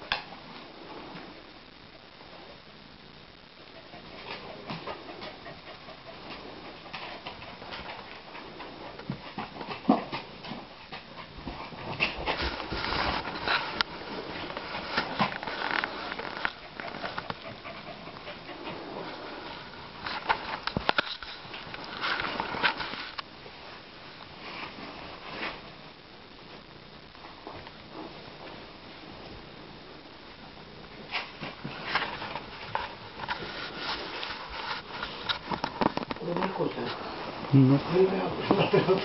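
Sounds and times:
dogs moving about: 4.0 - 23.2
cloth rubbing on microphone: 12.3 - 17.2, 31.7 - 37.4.

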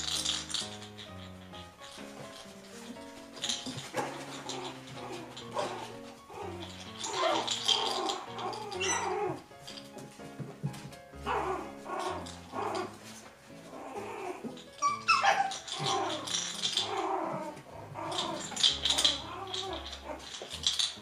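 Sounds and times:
puppies yipping and barking: 0.0 - 10.1, 10.7 - 21.0
background music: 0.0 - 21.0.

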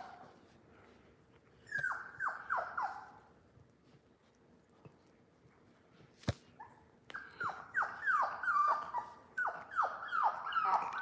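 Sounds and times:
puppy whimpering: 1.6 - 3.3, 6.6 - 11.0.

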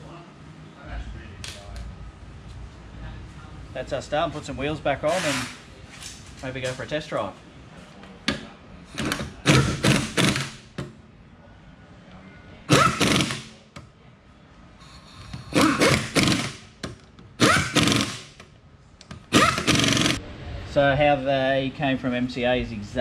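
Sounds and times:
impact wrench bursts: 5.0 - 5.7, 8.9 - 10.8, 12.7 - 13.6, 15.1 - 18.5, 19.1 - 20.2.

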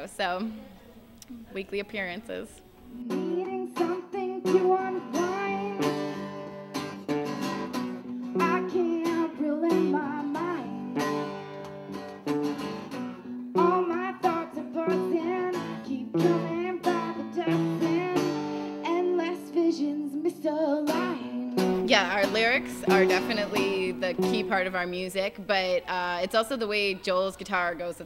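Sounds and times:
acoustic guitars strummed and picked: 2.9 - 25.8
woman singing: 3.0 - 6.0, 8.4 - 11.0, 13.6 - 25.3.

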